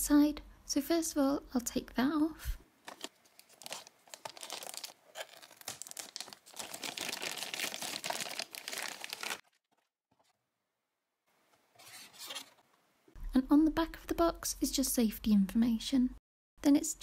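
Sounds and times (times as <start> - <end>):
plastic bag crinkling: 2.8 - 9.9.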